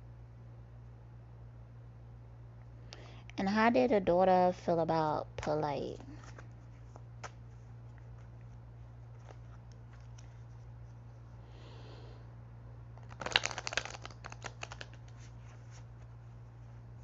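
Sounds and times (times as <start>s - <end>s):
steady low hum: 0.0s - 17.0s
cards being shuffled: 5.4s - 11.1s, 13.0s - 16.8s.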